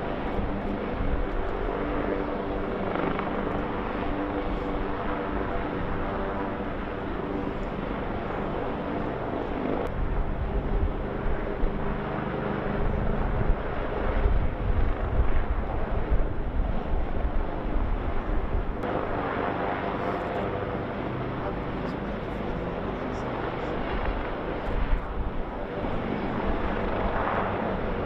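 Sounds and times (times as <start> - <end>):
wind buffeting microphone: 0.0 - 18.9
helicopter droning: 0.0 - 28.0.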